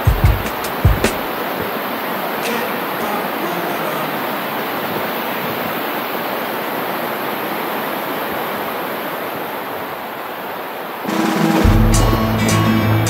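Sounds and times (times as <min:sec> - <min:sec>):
waterfall rushing over rocks: 0:00.7 - 0:11.7
background music: 0:11.1 - 0:13.0.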